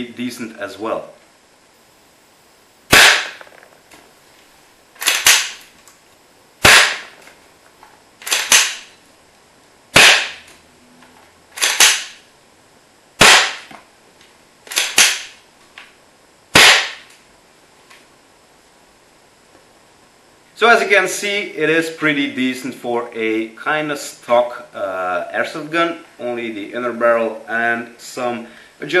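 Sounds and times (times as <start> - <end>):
airsoft rifle shot crack: 2.9 - 3.6, 5.0 - 5.6, 6.6 - 7.2, 8.2 - 8.9, 9.9 - 10.5, 11.6 - 12.2, 13.2 - 13.7, 14.7 - 15.4, 16.5 - 17.1
rifle bolt clacking: 8.2 - 8.8.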